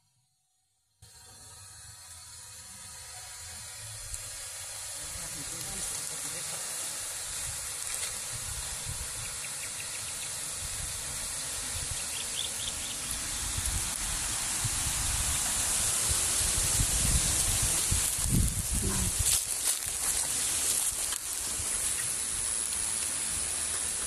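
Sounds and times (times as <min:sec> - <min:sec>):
wind on microphone: 0:13.3 - 0:19.4.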